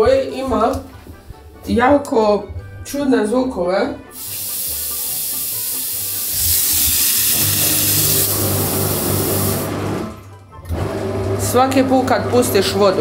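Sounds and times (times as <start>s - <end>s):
toilet flushing water rushing: 4.2s - 11.5s.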